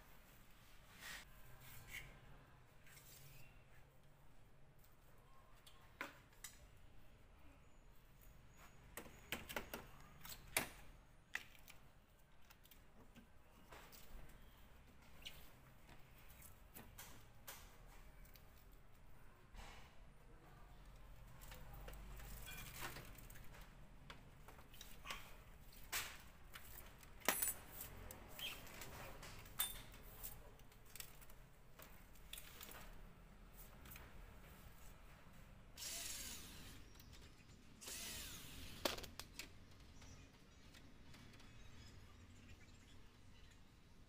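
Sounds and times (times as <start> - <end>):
plastic parts clicking and knocking: 38.8 - 41.8.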